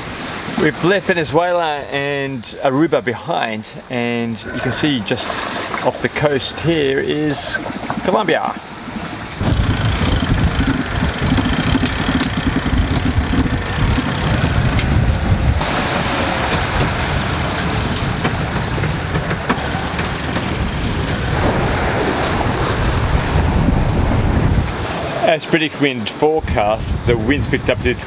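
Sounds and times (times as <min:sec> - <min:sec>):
water rushing past hull: 0:04.3 - 0:25.8
wind buffeting microphone: 0:09.4 - 0:25.1.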